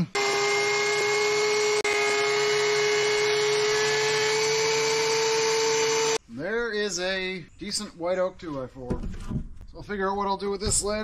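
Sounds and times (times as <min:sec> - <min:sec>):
thickness planer whirring: 0:00.1 - 0:06.2.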